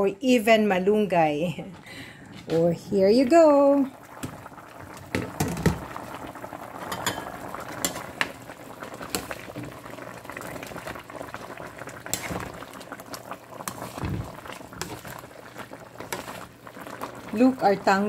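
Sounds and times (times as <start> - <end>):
broth bubbling in pot: 0.9 - 18.0
metal ladle clinking on pot: 6.9 - 8.0.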